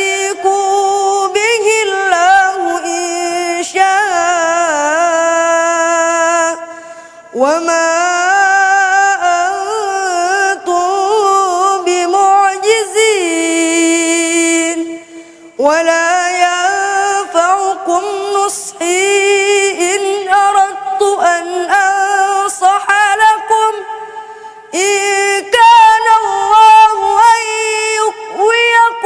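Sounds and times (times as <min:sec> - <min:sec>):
boy reciting melodically: 0:00.0 - 0:29.0.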